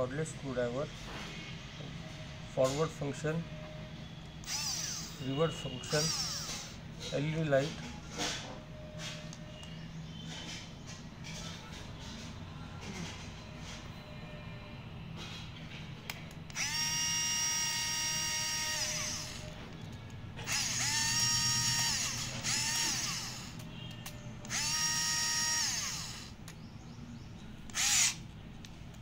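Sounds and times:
cordless screwdriver motor whirring: 4.4 - 5.3, 5.9 - 6.8, 16.5 - 19.6, 20.4 - 23.7, 24.4 - 26.4, 27.7 - 28.2.

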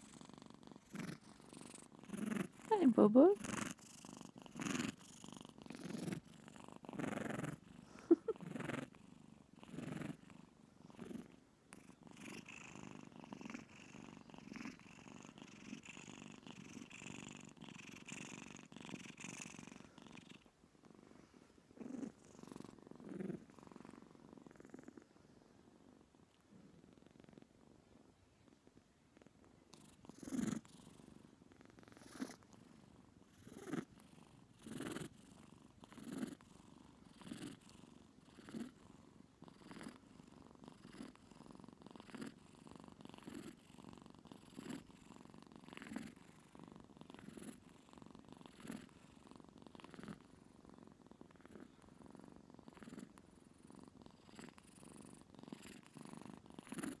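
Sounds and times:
kitten purring: 0.0 - 57.0.

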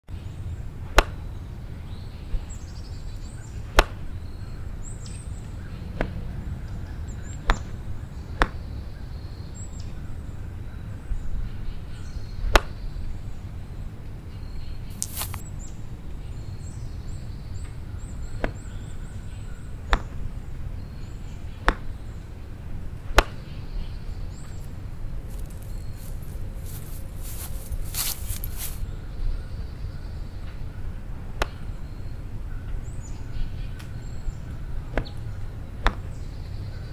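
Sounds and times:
small birds chirping faintly: 0.1 - 36.9
steady low rumble: 20.2 - 30.2.

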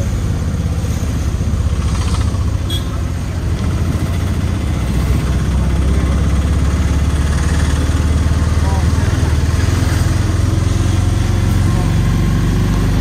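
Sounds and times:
autorickshaw engine running: 0.0 - 13.0.

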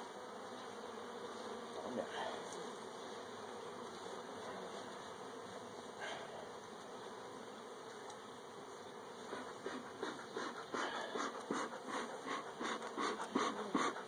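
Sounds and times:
bees buzzing: 0.0 - 14.0
bellows puffing: 9.2 - 14.0.

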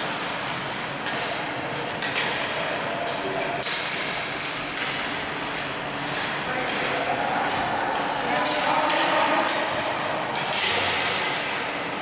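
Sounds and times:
echoing hall noise: 0.0 - 12.0.

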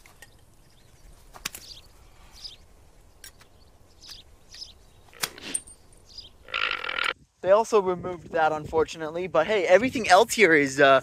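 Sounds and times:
sharp clicks: 3.2 - 5.7.

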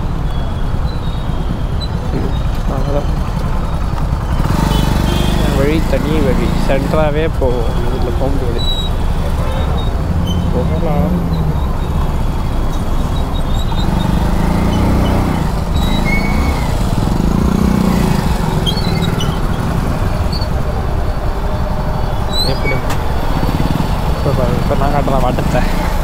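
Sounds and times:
motorbike engine running: 0.0 - 26.0
road traffic: 0.0 - 26.0.

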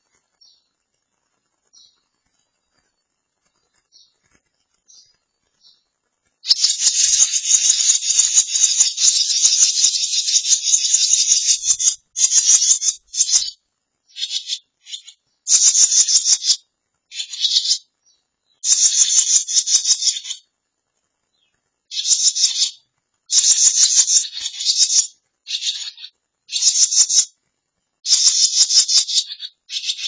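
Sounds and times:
nestlings begging calls: 6.4 - 17.9, 18.6 - 20.4, 21.9 - 27.3, 28.0 - 30.0.

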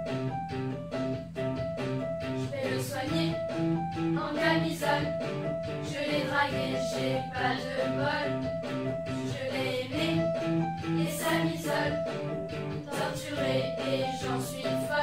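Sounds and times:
school band playing pop-rock: 1.8 - 15.0
girls singing together: 2.5 - 3.4, 4.2 - 5.1, 5.9 - 8.4, 9.2 - 10.2, 11.0 - 12.0, 12.8 - 15.0.

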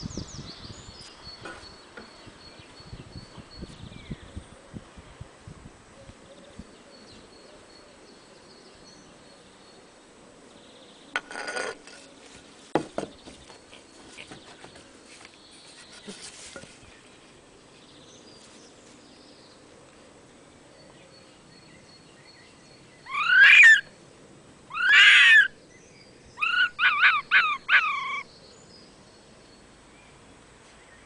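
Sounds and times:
fox cub crying: 23.1 - 23.9, 24.7 - 25.6, 26.4 - 28.3.

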